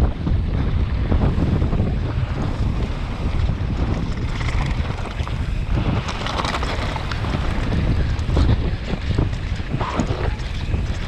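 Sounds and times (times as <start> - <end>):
wind buffeting microphone: 0.0 - 11.0
rattles and knocks from rough ground: 2.5 - 11.0.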